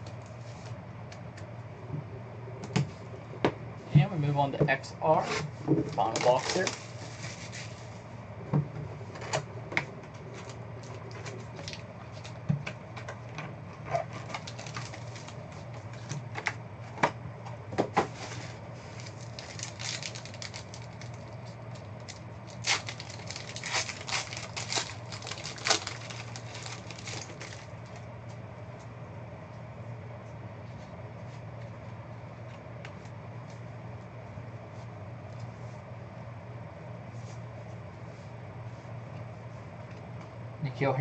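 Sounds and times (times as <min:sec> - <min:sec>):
steady low hum: 0:00.0 - 0:41.0
foil wrappers crinkling: 0:06.0 - 0:07.9, 0:10.2 - 0:12.5, 0:13.9 - 0:16.3, 0:18.8 - 0:28.0.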